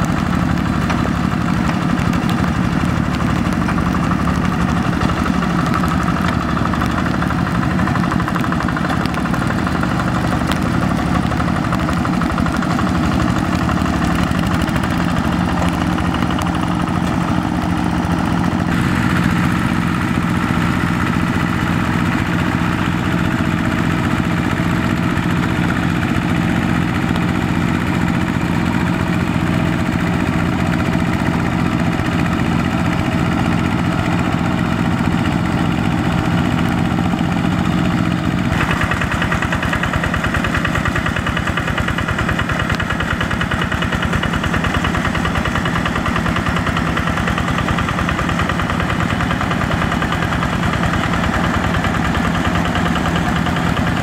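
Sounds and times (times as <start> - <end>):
diesel engine running under load: 0.0 - 54.0.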